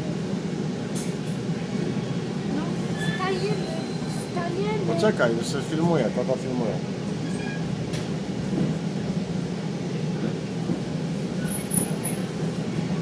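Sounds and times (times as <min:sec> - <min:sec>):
train car rumbling: 0:00.0 - 0:13.0
faint high squeak: 0:07.2 - 0:07.7.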